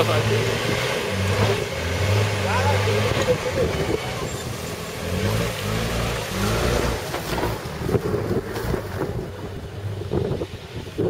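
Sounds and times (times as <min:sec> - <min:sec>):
car engine running at low revs: 0:00.0 - 0:11.0
wind buffeting microphone: 0:06.3 - 0:11.0.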